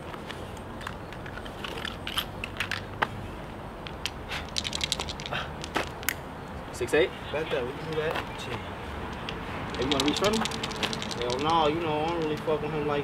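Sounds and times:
dice clicking on asphalt: 0.2 - 3.2, 3.8 - 6.2, 7.8 - 12.5
dice rattling in a hand: 4.0 - 6.1, 9.6 - 12.4.

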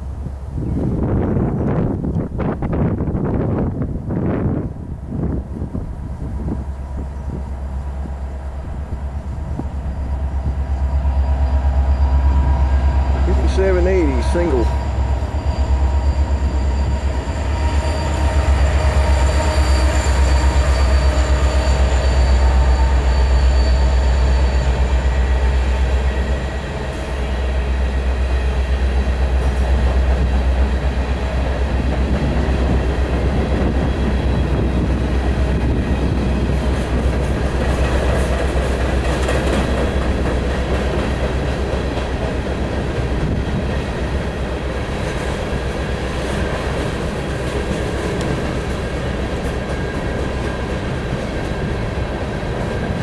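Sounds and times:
wind rumble on microphone: 0.0 - 10.8, 31.6 - 41.1, 42.5 - 44.2
high wheel squeal: 9.2 - 28.6
train wheels clattering on rails: 9.2 - 53.0.

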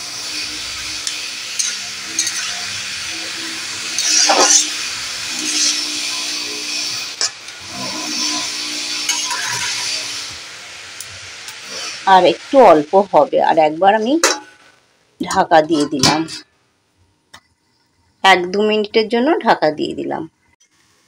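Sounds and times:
water boiling with steam hiss: 0.0 - 16.8, 20.6 - 21.0
metal spatula scraping pan: 0.3 - 10.4, 13.5 - 16.4.

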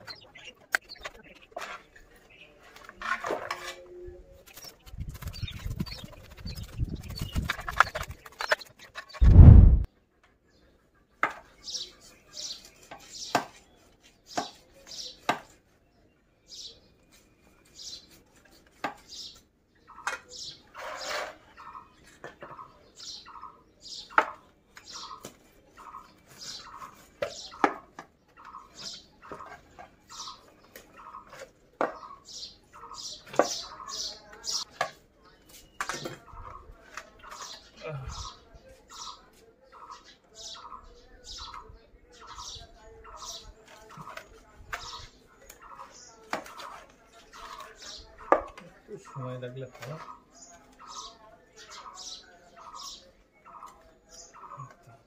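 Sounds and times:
loud low thump: 9.2 - 9.9.

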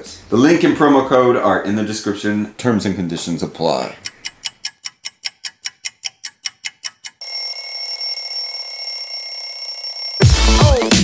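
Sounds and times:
timer ticking: 3.9 - 10.8
alarm bell ringing: 7.2 - 10.8.

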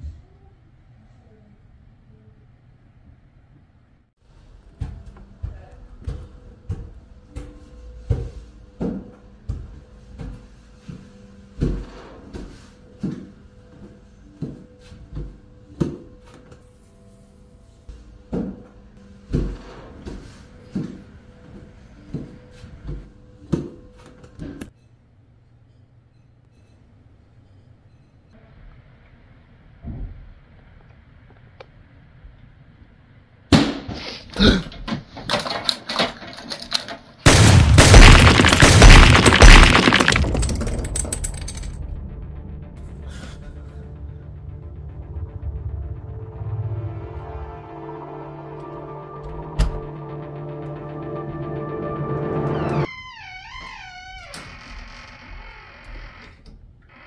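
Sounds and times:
crashing and smashing: 37.3 - 41.8
sharp knocks and bangs: 37.3 - 41.8
loud bang: 37.3 - 43.4.

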